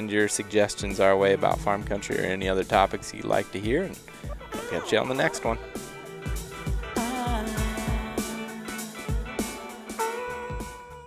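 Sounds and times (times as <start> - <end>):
steady drum beat: 0.8 - 10.8
electric guitar: 4.0 - 11.0.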